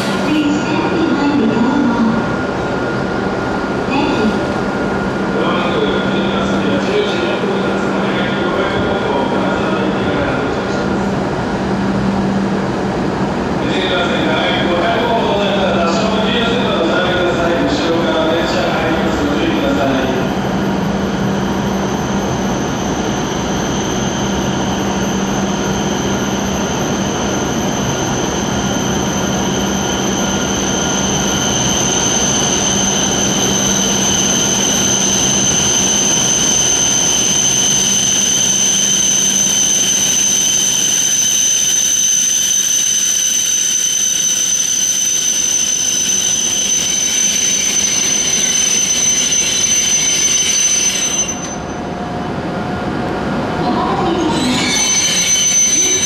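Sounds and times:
train rolling noise: 0:00.0 - 0:56.0
high-pitched whine: 0:53.6 - 0:56.0.

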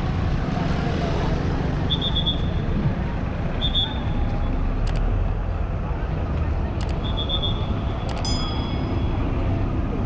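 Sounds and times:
rumble of cars and scooters: 0:00.0 - 0:10.0
passers-by talking: 0:02.7 - 0:10.0.

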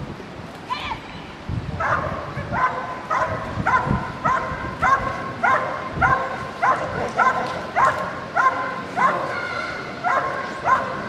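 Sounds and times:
dog barking steadily: 0:01.8 - 0:09.4, 0:10.0 - 0:11.0.

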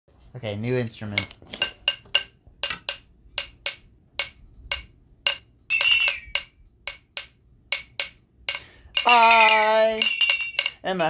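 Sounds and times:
high wavering tone: 0:05.7 - 0:06.5, 0:09.0 - 0:10.8
percussion clinks with high ring: 0:05.7 - 0:06.5, 0:08.5 - 0:10.9.

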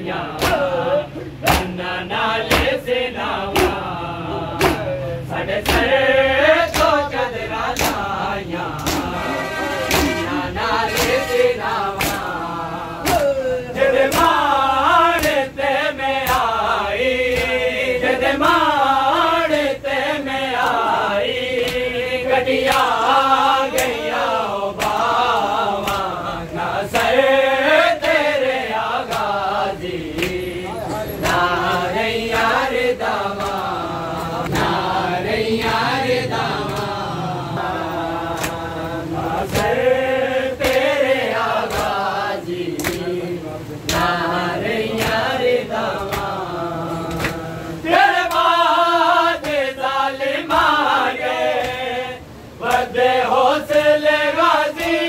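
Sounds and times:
men chanting in unison: 0:00.0 - 0:55.0
rhythmic sharp slaps: 0:00.0 - 0:55.0.

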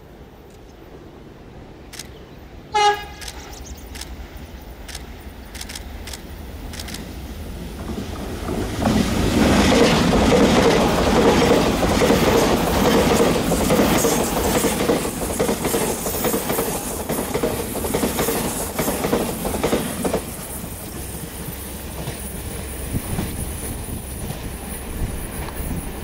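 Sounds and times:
distant train rumble: 0:00.0 - 0:26.0
train passing at speed: 0:00.0 - 0:26.0
wheels clacking over rail joints: 0:07.8 - 0:26.0.

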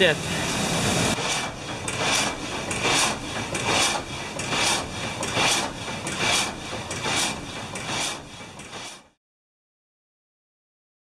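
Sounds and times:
frame saw rasping through wood: 0:01.1 - 0:09.2.

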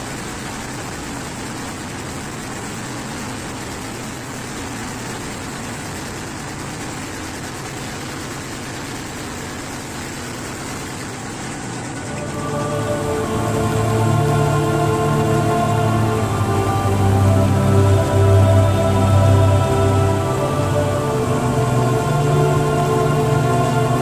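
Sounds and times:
train running through tunnel: 0:00.0 - 0:24.0
music: 0:12.1 - 0:24.0.

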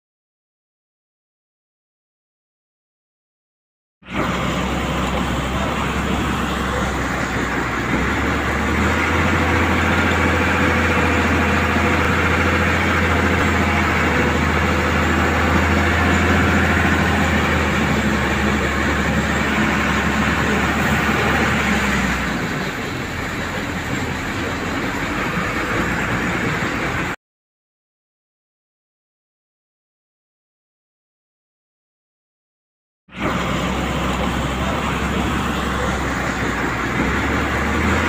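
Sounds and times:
diesel engine under load: 0:04.0 - 0:27.2, 0:33.1 - 0:38.0
heavy low hum: 0:04.1 - 0:27.2.

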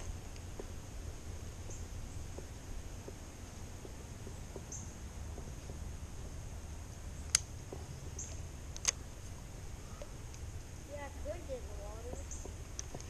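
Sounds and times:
sharp clicks: 0:07.2 - 0:09.0, 0:12.1 - 0:13.0.

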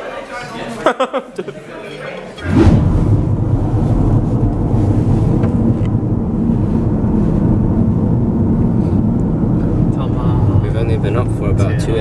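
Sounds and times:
road and wind rumble in car: 0:02.6 - 0:12.0.

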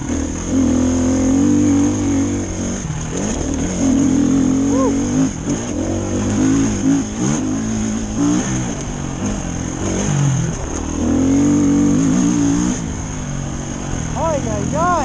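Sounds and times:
dirt bike engine revving: 0:00.0 - 0:15.0.

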